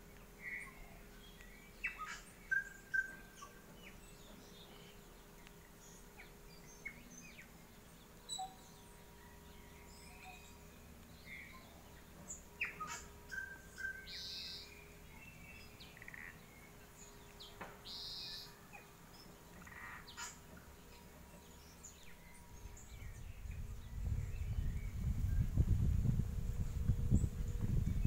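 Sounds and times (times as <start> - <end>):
birds chirping and whistling: 0.4 - 5.1, 8.2 - 25.6
buzzy bird calls: 0.4 - 5.1, 11.4 - 21.1
low rumbling noise: 20.7 - 28.0.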